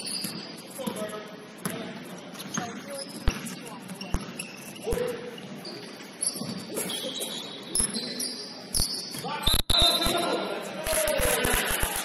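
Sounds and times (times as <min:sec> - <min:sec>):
sneakers squeaking on hardwood: 0:00.0 - 0:01.0, 0:02.4 - 0:09.3
basketball bouncing: 0:02.5 - 0:05.1.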